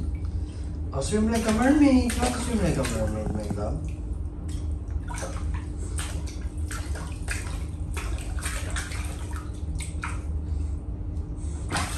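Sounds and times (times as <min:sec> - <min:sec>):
low steady hum: 0:00.0 - 0:11.9
water splashing in paddling pool: 0:01.1 - 0:10.4, 0:11.6 - 0:11.9.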